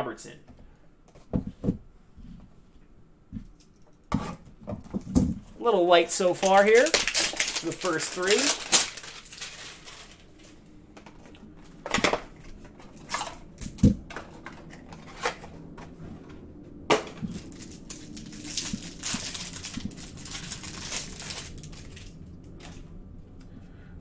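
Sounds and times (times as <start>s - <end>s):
crinkly rustling: 4.8s - 16.3s, 17.0s - 22.9s.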